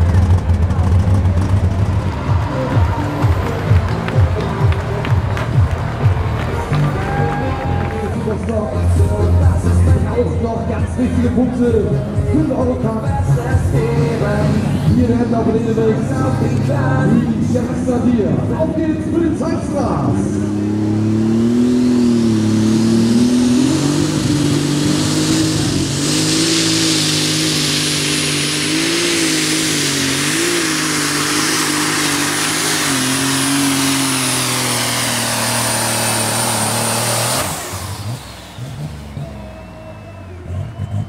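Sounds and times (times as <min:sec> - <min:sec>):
tractor diesel engine roaring: 0:00.0 - 0:41.0
high whistle: 0:38.6 - 0:41.0.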